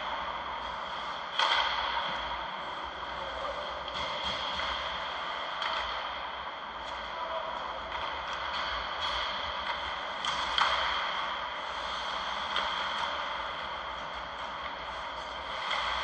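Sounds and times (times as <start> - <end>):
distant hockey stick clacks: 0.6 - 2.4, 3.8 - 6.2, 7.8 - 11.4.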